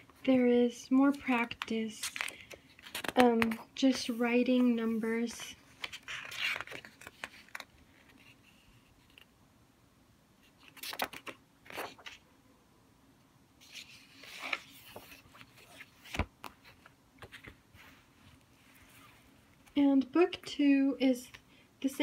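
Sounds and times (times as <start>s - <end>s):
paper pages rustling: 1.1s - 9.3s, 10.5s - 12.2s, 13.6s - 19.8s.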